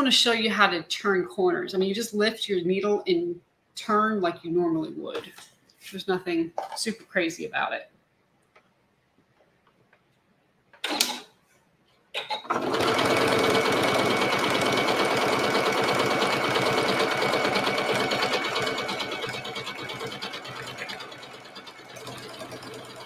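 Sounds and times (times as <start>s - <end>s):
sewing machine stitching: 12.2s - 23.0s.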